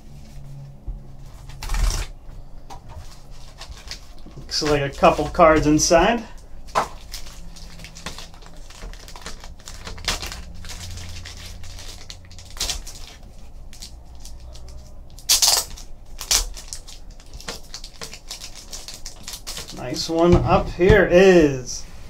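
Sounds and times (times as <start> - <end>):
plastic wrapper crinkling: 2.8 - 20.3.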